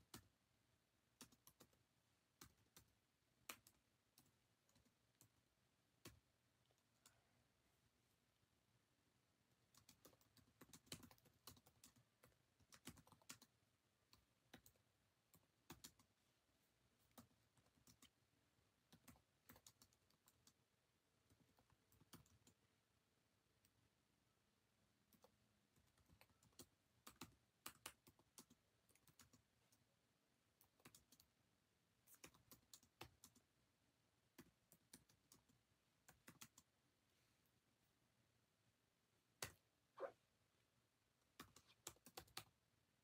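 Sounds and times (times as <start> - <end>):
faint irregular clicks and taps: 0.0 - 0.4, 1.1 - 7.2, 9.5 - 22.7, 25.0 - 31.4, 32.0 - 33.6, 34.2 - 36.8, 39.2 - 39.7, 40.6 - 42.6.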